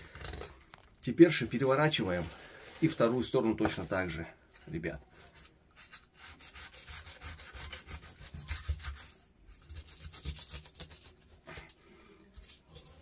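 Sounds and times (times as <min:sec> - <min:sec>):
knife scraping fish bone: 0:05.4 - 0:13.0.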